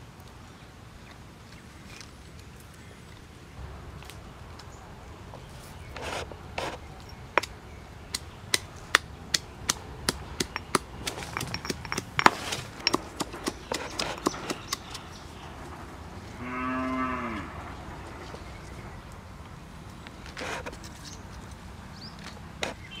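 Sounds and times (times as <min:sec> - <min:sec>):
pestle pounding in stone mortar: 0:07.4 - 0:15.0
cow mooing: 0:16.4 - 0:17.6.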